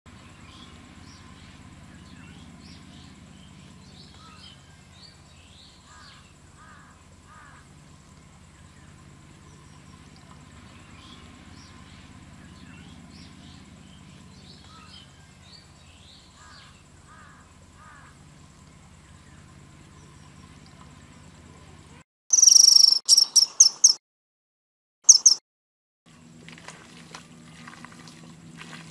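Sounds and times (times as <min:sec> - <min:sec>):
steady low hum: 0:00.1 - 0:23.0, 0:26.1 - 0:28.9
birds chirping: 0:00.2 - 0:24.0, 0:25.0 - 0:25.4
thin high tone: 0:22.3 - 0:24.0.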